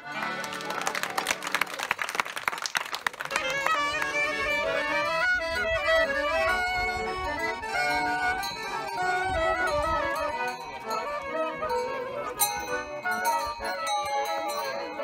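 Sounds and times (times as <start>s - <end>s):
hand clapping: 0.0s - 4.6s
accordion: 0.0s - 15.0s
clarinet melody with sliding notes: 3.3s - 15.0s.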